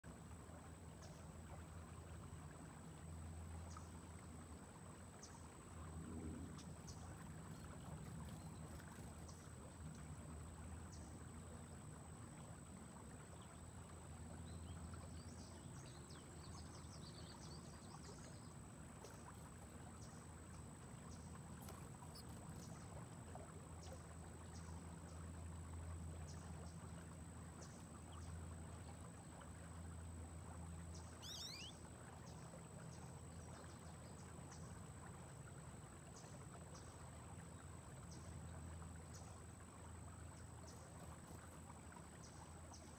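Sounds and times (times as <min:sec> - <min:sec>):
low steady rumble: 0:00.0 - 0:42.9
river water lapping and trickling: 0:00.0 - 0:42.9
faint high chirps: 0:31.2 - 0:31.8.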